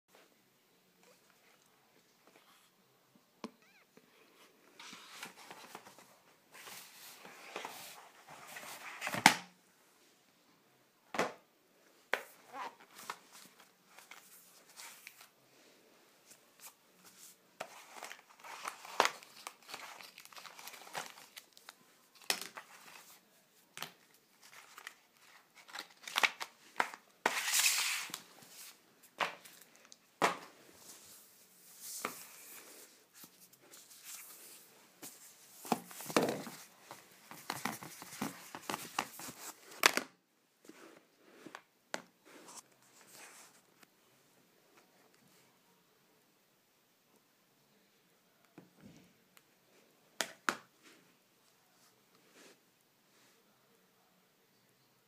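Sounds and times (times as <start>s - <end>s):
cardboard packaging rustling and tearing: 17.6s - 23.2s, 24.4s - 28.8s.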